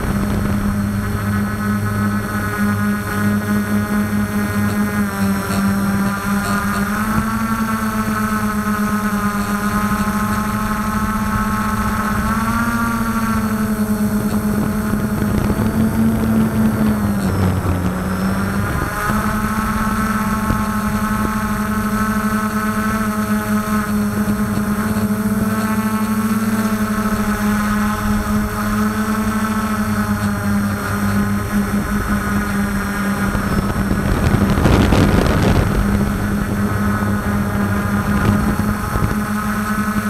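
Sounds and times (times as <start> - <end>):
drone propellers humming: 0.0 - 40.0.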